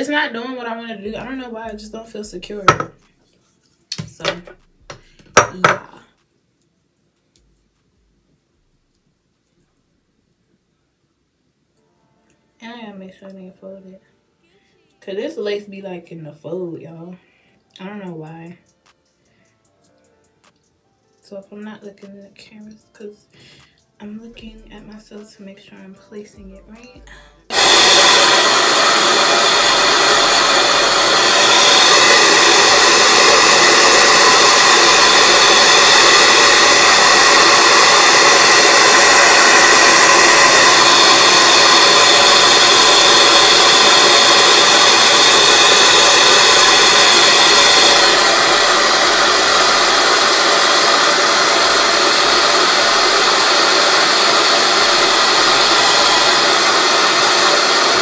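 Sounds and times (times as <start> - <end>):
hair dryer blowing: 2.6 - 3.0, 27.5 - 58.0.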